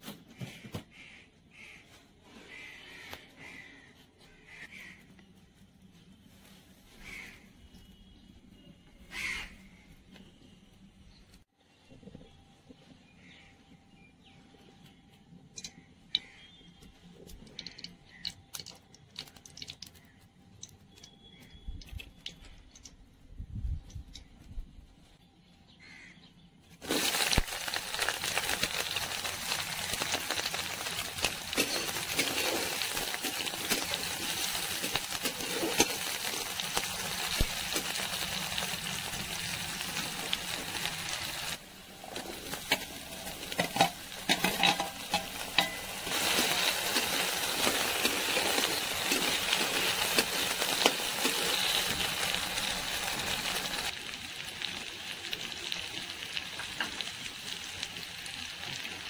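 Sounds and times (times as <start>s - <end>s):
onions sizzling in hot oil: 26.8s - 59.0s.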